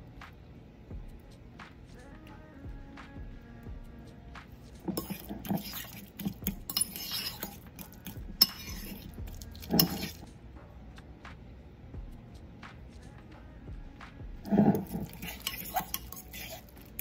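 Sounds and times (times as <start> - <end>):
fork scraping and clinking bowl: 4.8 - 10.3, 14.4 - 17.0.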